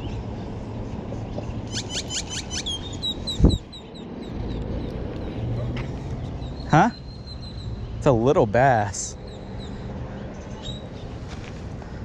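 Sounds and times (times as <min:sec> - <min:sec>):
bird calling: 0:01.6 - 0:03.9.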